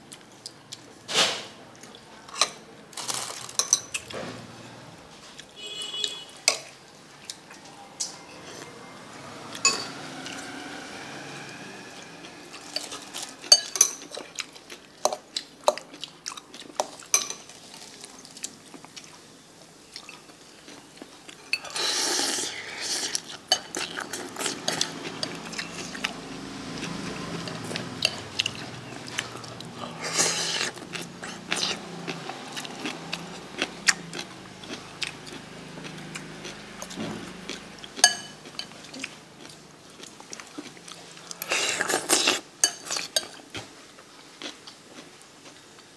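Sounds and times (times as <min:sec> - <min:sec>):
cutlery clinking against ceramic bowl: 0:03.5 - 0:04.1, 0:09.6 - 0:10.0, 0:12.6 - 0:14.3, 0:16.8 - 0:17.5, 0:38.0 - 0:39.0, 0:42.6 - 0:43.4
chewing: 0:11.9 - 0:19.2, 0:19.9 - 0:45.9.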